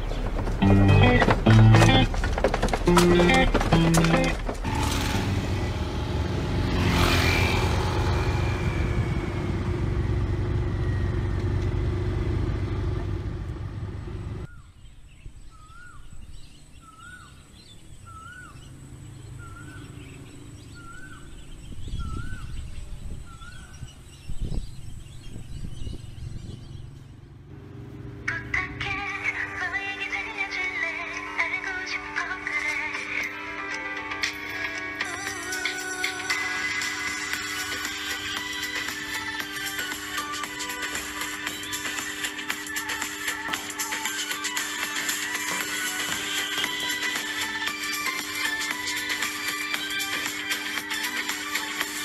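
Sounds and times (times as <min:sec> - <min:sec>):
road traffic rumble: 0:00.0 - 0:14.6, 0:16.6 - 0:52.0
knocks: 0:00.2 - 0:04.8.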